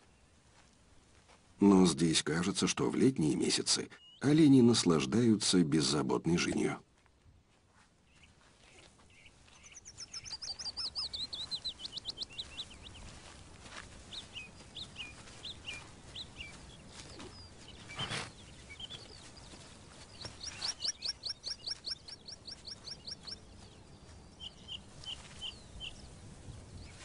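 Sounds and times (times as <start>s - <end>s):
small songbird singing: 3.9s - 4.5s, 8.1s - 13.3s, 14.0s - 27.0s.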